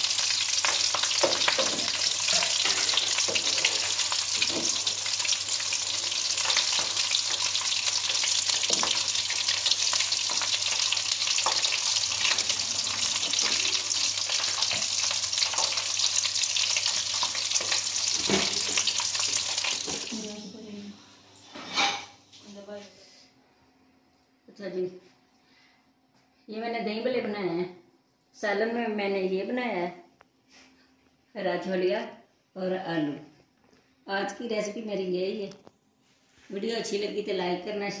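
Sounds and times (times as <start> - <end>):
food sizzling in hot oil: 0.0 - 20.6.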